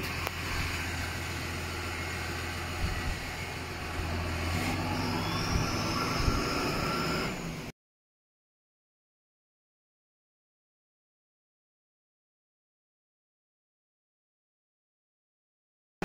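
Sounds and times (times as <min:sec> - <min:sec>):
tractor engine running: 0:00.0 - 0:07.7.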